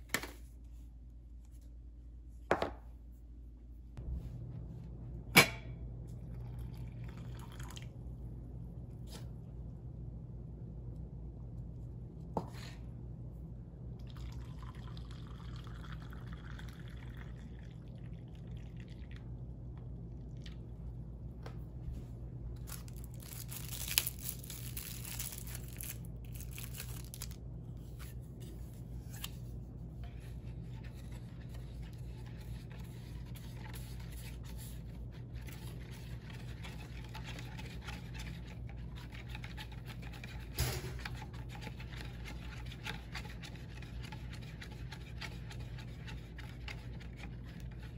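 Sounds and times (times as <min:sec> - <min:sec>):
steady low hum: 0:00.0 - 0:47.9
liquid noises: 0:14.0 - 0:21.0.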